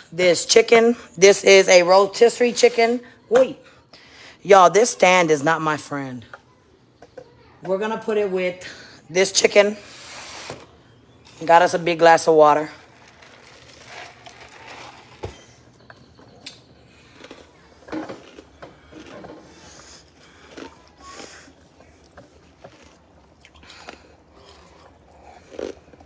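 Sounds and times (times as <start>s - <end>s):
rustling: 12.8s - 15.8s.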